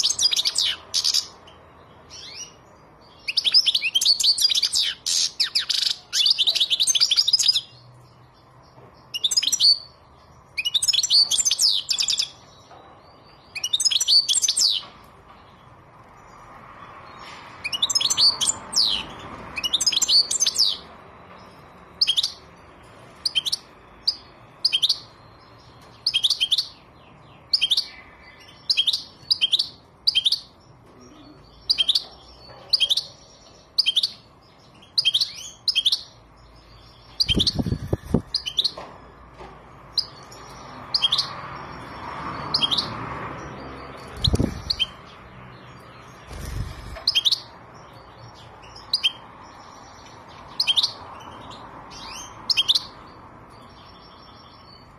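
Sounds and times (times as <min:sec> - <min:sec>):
bird chirping calls: 0:00.0 - 0:54.9.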